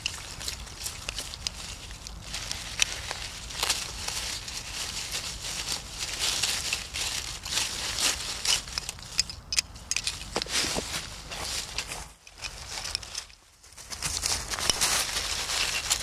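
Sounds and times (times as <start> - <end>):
hands digging through dry leaves: 0.0 - 9.2, 10.3 - 16.0.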